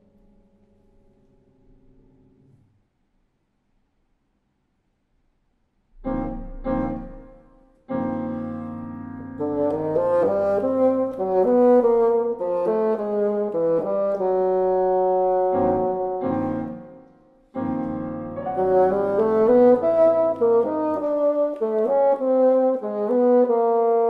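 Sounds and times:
bassoon playing: 6.0s - 24.0s
piano chords: 6.0s - 24.0s.

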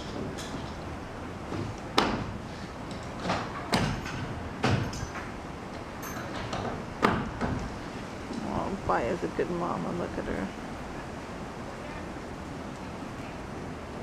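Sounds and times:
low background rumble: 0.0s - 14.0s
sharp knocks and bangs: 1.5s - 2.4s, 3.2s - 5.3s, 6.4s - 7.7s.

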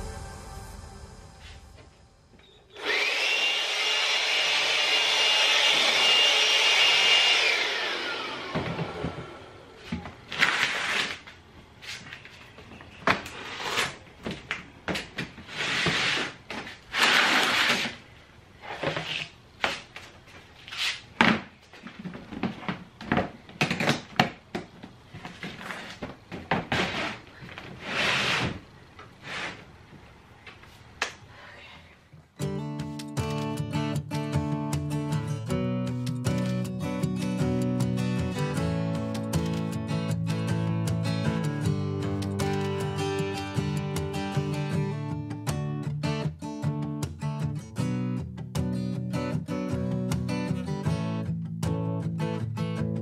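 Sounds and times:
blower motor whine: 0.0s - 10.0s.

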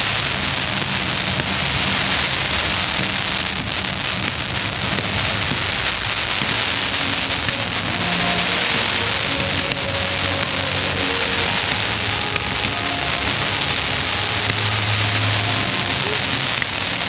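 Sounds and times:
fireworks crackling: 0.0s - 17.0s
low music over sound system: 6.4s - 17.0s.

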